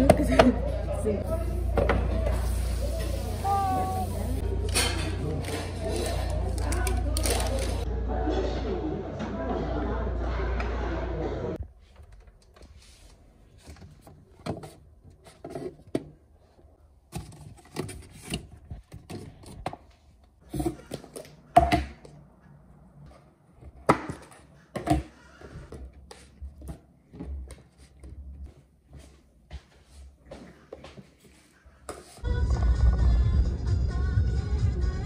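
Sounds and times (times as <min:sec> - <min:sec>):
plastic packaging rustling: 0:05.4 - 0:07.9.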